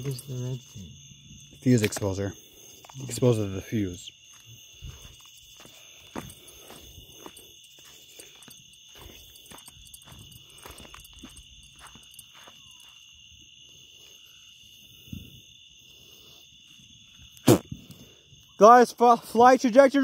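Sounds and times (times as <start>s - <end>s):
crickets trilling: 0.0s - 20.0s
footsteps on gravel: 3.8s - 13.1s.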